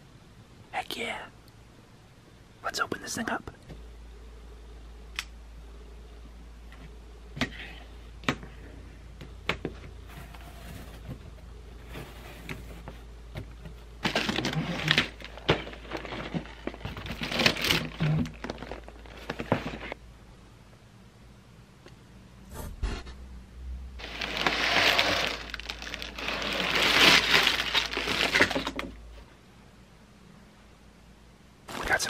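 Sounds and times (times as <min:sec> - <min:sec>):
steady low hum: 0:00.0 - 0:32.0
cardboard scraping and rustling: 0:10.1 - 0:20.0, 0:24.0 - 0:28.9.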